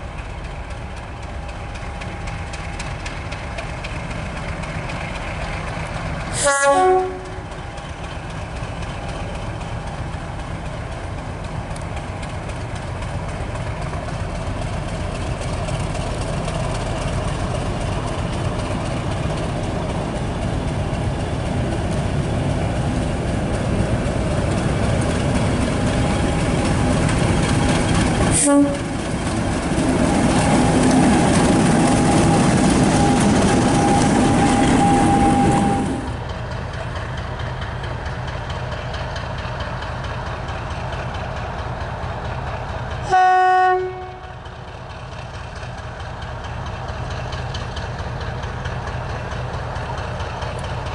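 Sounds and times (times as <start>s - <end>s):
diesel locomotive passing: 0.0s - 50.9s
steady engine whine: 17.4s - 36.2s.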